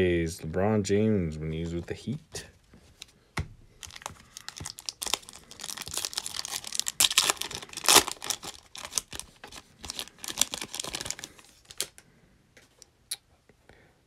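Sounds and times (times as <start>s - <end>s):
foil wrapper tearing and crinkling: 3.8s - 12.0s.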